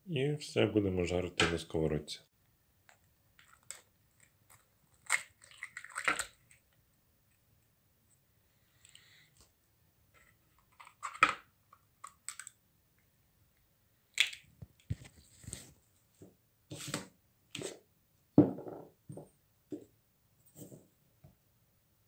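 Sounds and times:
plastic bowl and fork knocking: 18.4s - 19.3s.

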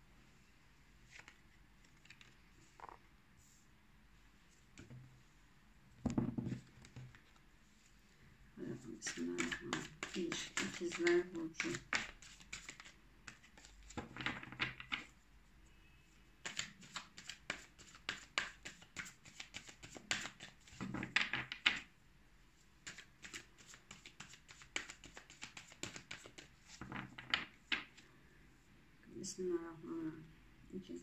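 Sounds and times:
cards being shuffled: 1.1s - 3.0s, 9.0s - 15.1s, 16.4s - 21.8s, 22.8s - 28.0s.

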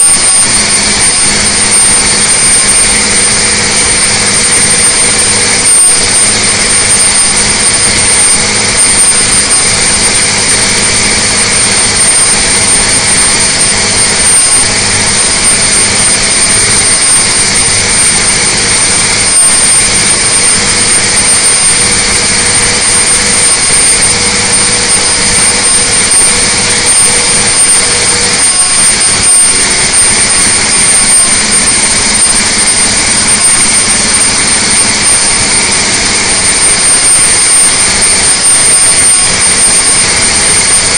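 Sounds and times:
diesel engine roaring: 0.0s - 40.9s
turbo whistle: 0.0s - 40.9s.

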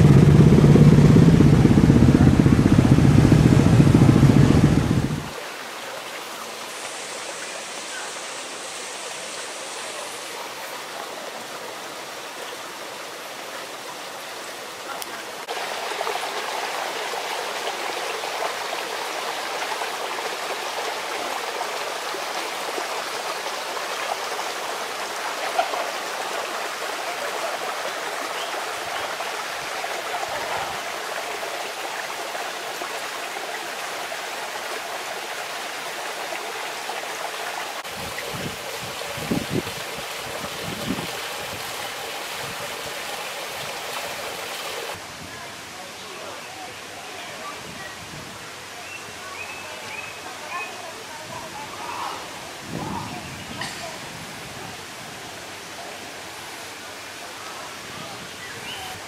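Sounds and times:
short low bumps: 0.0s - 5.3s
fountain water rushing: 0.0s - 59.0s.

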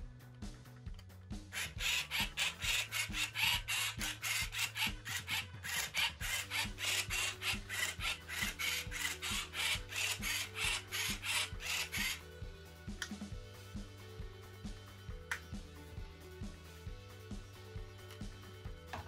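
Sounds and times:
robot whirring turning a cube: 1.5s - 12.2s.

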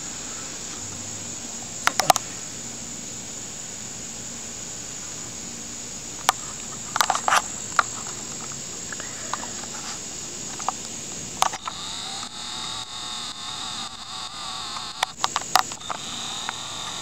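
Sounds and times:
camera handling clicks: 11.4s - 17.0s
high-pitched insect drone: 11.4s - 17.0s
wavering motor whine: 11.4s - 17.0s.

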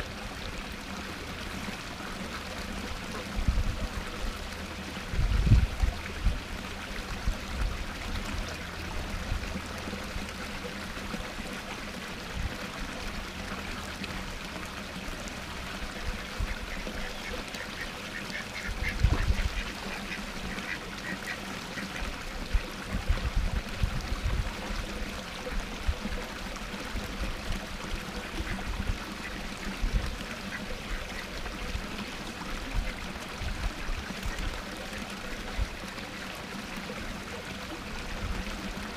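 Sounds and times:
waterfall splashing into pond: 0.0s - 38.9s
ducks quacking: 15.9s - 22.7s.

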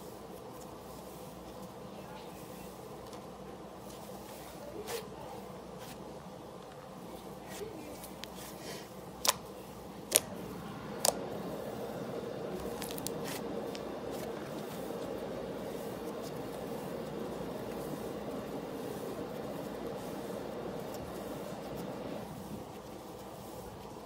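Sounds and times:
background hum: 4.6s - 24.0s
slime snapping: 10.1s - 10.3s.

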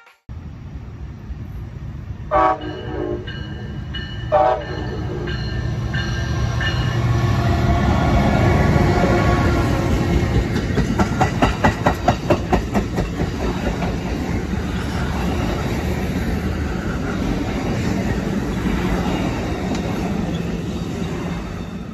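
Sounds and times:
rumble of wheels on rail: 0.3s - 21.9s
wheel clacks over track joints: 10.3s - 14.0s.

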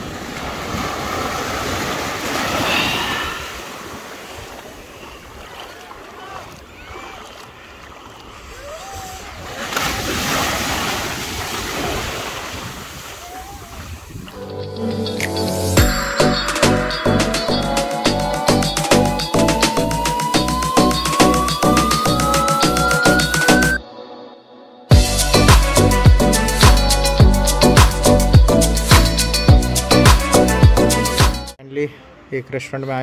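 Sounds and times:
small waves washing on shore: 0.0s - 14.4s.

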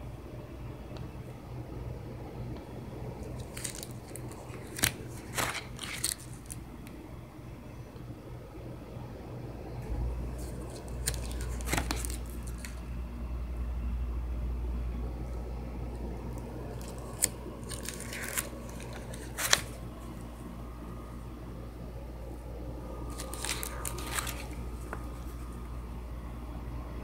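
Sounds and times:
low rumble of phone handling: 2.5s - 7.2s, 9.8s - 13.0s, 15.9s - 26.1s
plastic pages crinkling: 3.2s - 7.0s, 10.3s - 12.8s, 16.7s - 20.4s, 23.1s - 25.6s.

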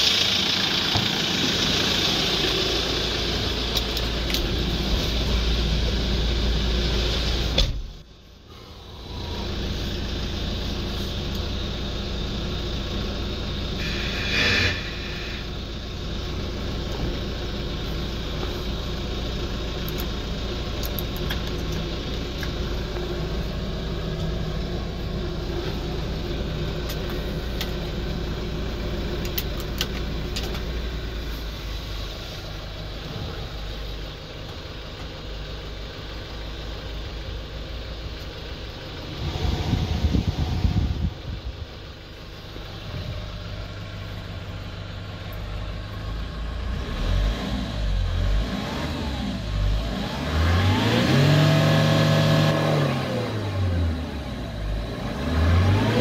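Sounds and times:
diesel engine idling: 0.0s - 56.0s
sharp thump: 7.6s - 8.0s.

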